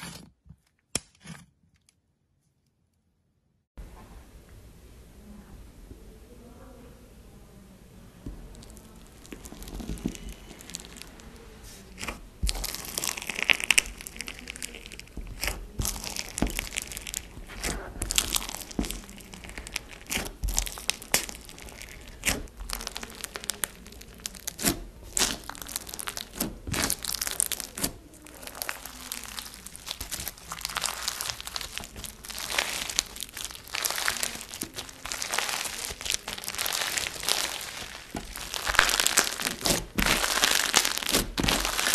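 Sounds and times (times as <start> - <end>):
crunchy slime crackles and pops: 8.4 - 41.9.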